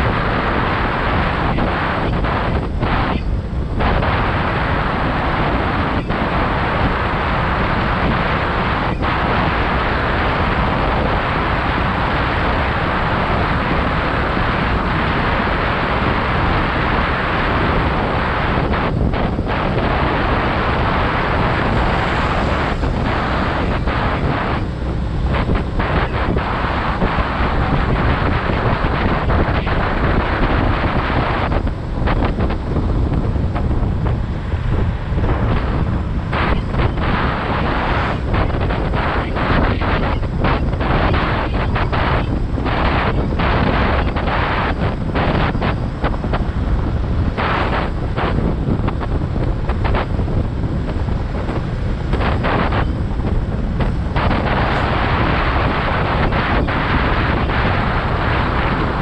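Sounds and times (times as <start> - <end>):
road noise: 0.0 - 59.0
wind rushing over microphone: 0.0 - 59.0
motorcycle engine: 16.3 - 44.1.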